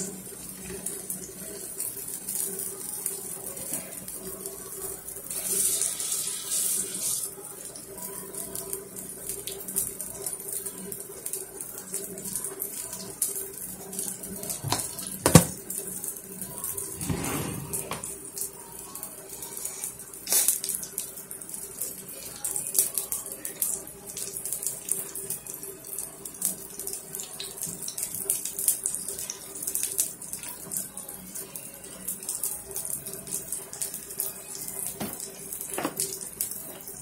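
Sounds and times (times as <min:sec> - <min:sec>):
batter sizzling in hot oil: 0:00.0 - 0:16.2.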